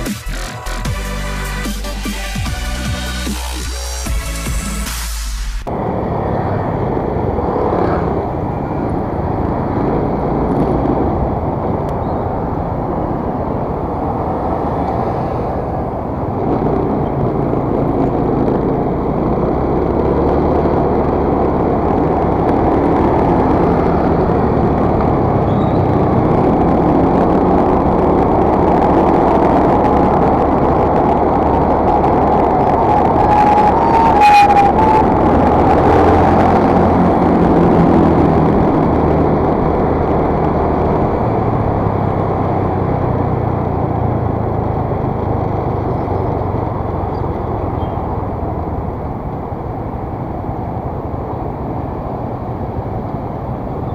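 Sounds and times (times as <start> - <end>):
road and wind noise: 0.0 - 53.9
scooter engine running: 6.2 - 32.7.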